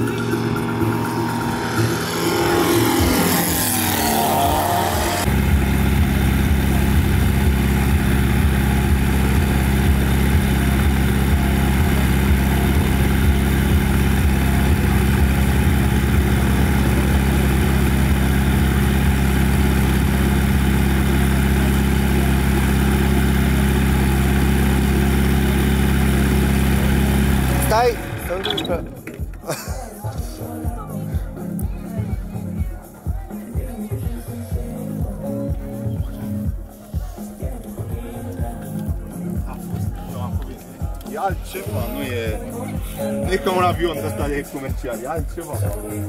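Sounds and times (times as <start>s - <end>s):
engine idling: 0.0s - 4.2s, 4.8s - 29.3s
shifting sweeping sound: 0.0s - 5.6s.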